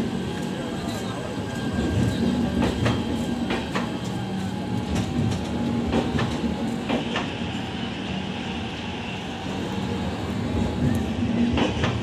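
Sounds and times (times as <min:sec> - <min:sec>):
train coaches rumbling past: 0:00.0 - 0:12.0.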